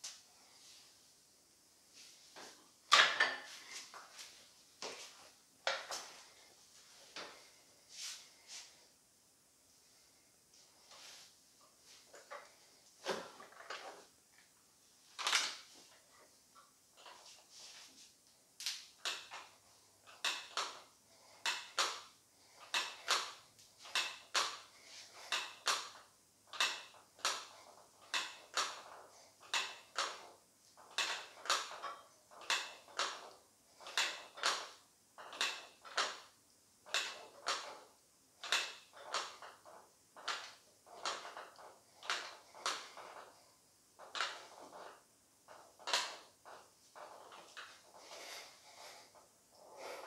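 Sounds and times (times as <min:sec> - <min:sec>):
man breathing hard: 0:47.9 - 0:50.0.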